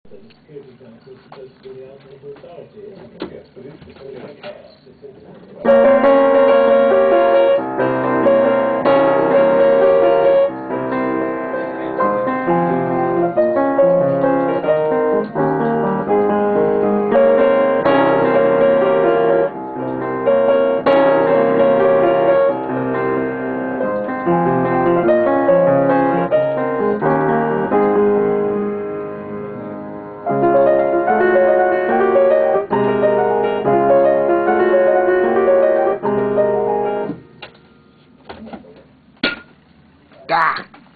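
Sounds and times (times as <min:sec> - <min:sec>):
solo piano playing: 0:05.6 - 0:37.4.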